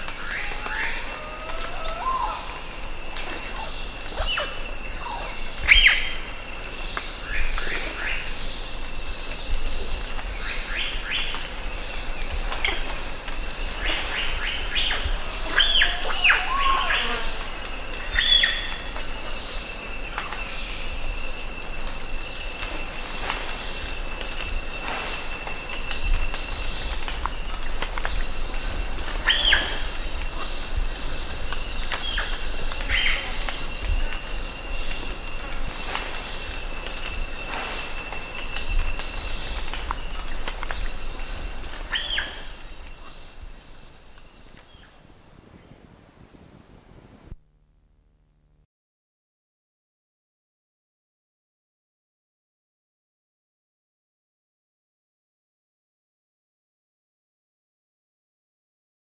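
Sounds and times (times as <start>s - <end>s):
high-pitched cicada drone: 0.0s - 45.7s
faint insect tone: 0.0s - 48.7s.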